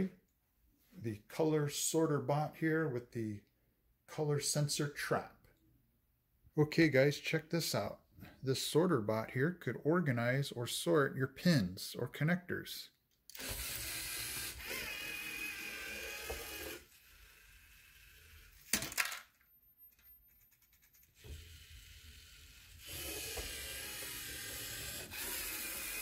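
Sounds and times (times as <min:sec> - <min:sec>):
electric motors whirring through gears: 0:13.3 - 0:18.7, 0:21.2 - 0:26.0.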